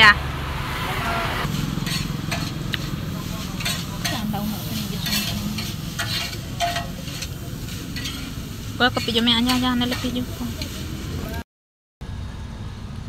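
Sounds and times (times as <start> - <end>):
light scrapes and clicks: 5.0 - 8.4.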